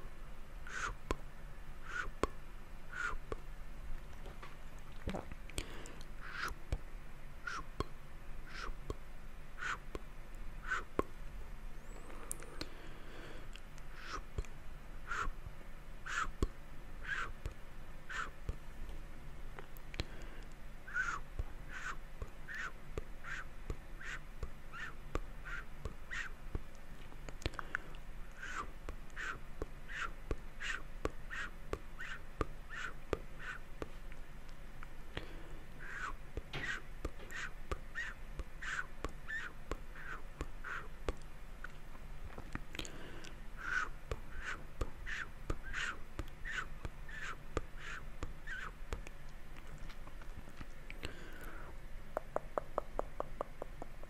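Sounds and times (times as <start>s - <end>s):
small mouth clicks: 1.9s - 2.4s, 3.0s - 3.4s, 4.0s - 6.8s, 7.5s - 9.0s, 13.5s - 15.4s, 16.1s - 18.6s, 19.5s - 54.0s
wet breathy mouth sounds: 4.8s - 6.7s, 8.5s - 9.0s, 12.0s - 14.5s, 27.0s - 31.5s, 35.1s - 51.8s
tongue clicks: 4.8s - 6.8s, 7.5s - 9.0s, 48.2s - 51.6s, 52.2s - 54.0s.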